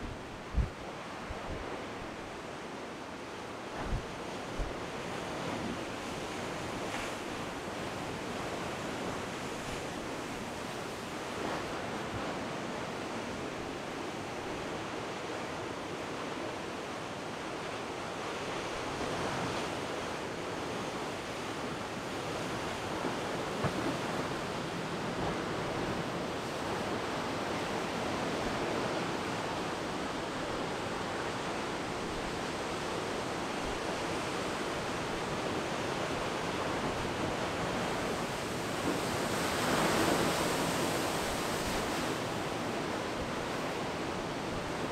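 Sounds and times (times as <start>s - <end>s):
heavy surf breaking on rocks: 18.6s - 44.9s.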